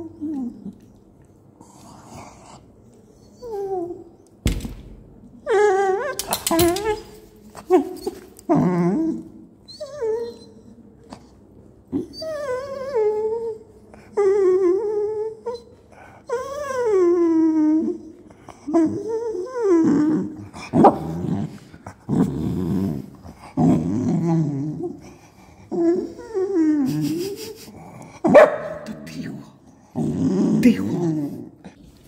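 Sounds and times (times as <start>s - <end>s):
dog whining: 0.0s - 1.0s, 1.7s - 4.4s, 5.3s - 11.3s, 11.9s - 21.5s, 22.1s - 28.9s
dog growling: 1.6s - 2.8s, 18.7s - 31.8s.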